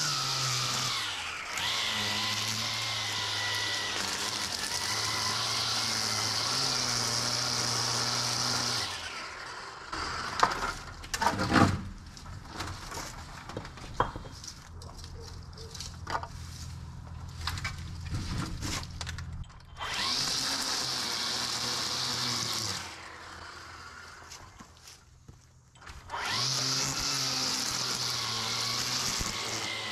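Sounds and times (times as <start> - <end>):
electric edger running: 0.0 - 11.1, 19.8 - 24.8, 25.8 - 29.9
knocks and scrapes: 10.3 - 19.8.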